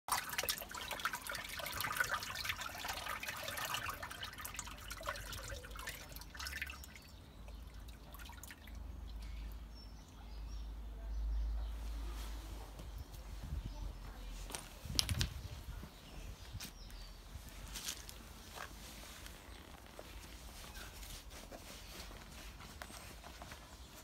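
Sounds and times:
water trickling and bubbling in drain: 0.1 - 9.8.

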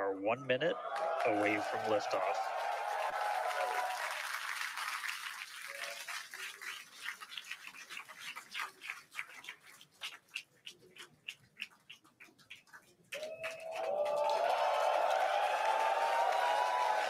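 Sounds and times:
crowd applause and cheering: 0.8 - 9.6, 13.1 - 17.0
scattered individual claps: 2.5 - 17.0.

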